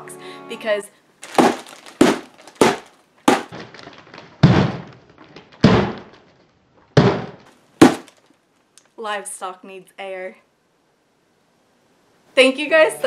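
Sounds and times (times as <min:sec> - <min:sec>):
cardboard box being punctured: 0:01.2 - 0:03.6, 0:07.8 - 0:08.2.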